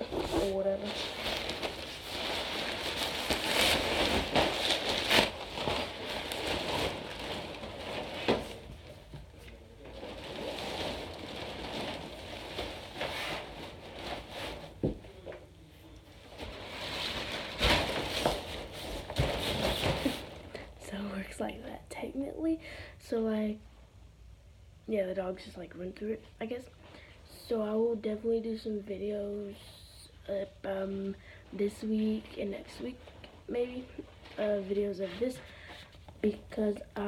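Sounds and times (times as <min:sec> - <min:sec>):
nylon fabric rustling: 0:00.0 - 0:15.3, 0:16.2 - 0:20.8.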